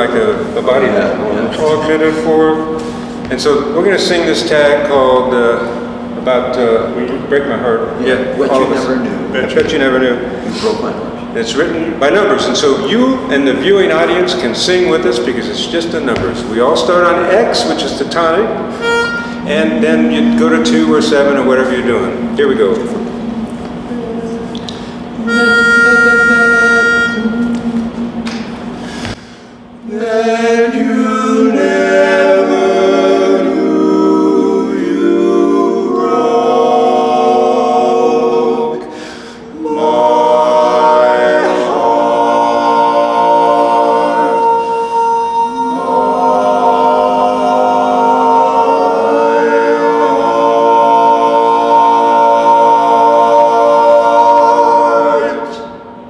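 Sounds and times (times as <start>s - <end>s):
men singing in close harmony: 19.4s - 22.3s, 29.8s - 55.8s.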